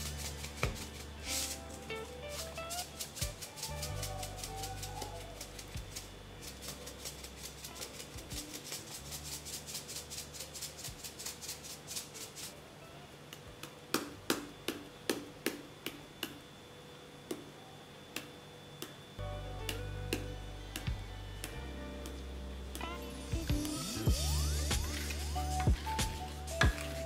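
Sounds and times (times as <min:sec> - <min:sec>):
shaker tapping: 0:00.0 - 0:01.6, 0:02.3 - 0:11.6, 0:22.8 - 0:27.0
seasoning shaker rattling: 0:00.0 - 0:12.6, 0:23.6 - 0:27.0.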